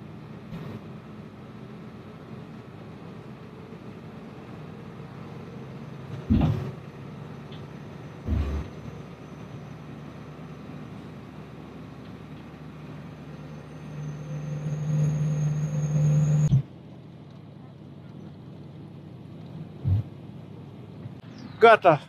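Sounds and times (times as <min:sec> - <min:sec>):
coach engine and road drone: 0:00.0 - 0:22.0
heavy thumps: 0:06.2 - 0:06.8.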